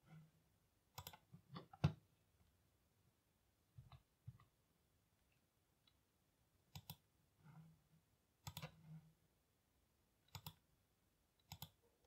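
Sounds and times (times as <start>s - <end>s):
mouse and keyboard clicks: 0.9s - 2.0s, 6.7s - 7.1s, 8.4s - 8.8s, 10.3s - 10.6s, 11.4s - 11.8s.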